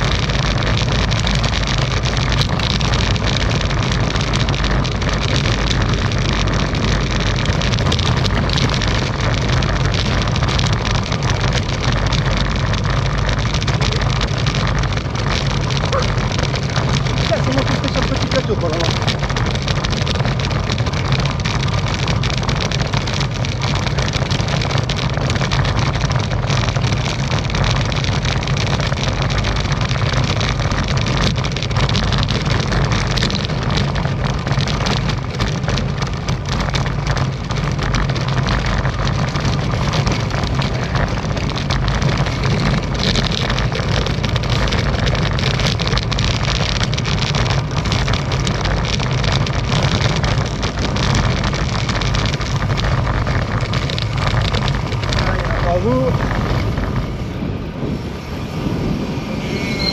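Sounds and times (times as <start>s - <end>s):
bike rattling over cobblestones: 0.0s - 59.9s.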